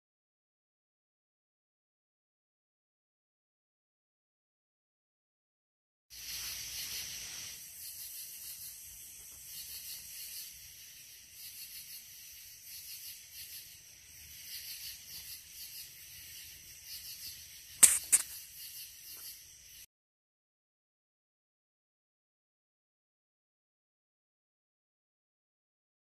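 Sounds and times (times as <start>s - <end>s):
night insects chorusing: 6.1s - 19.9s
sharp clicks: 17.8s - 18.4s.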